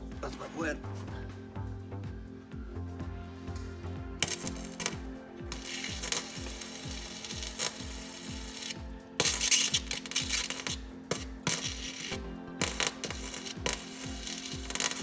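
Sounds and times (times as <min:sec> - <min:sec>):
background music with low beat: 0:00.0 - 0:15.0
welding arc crackling: 0:04.2 - 0:15.0.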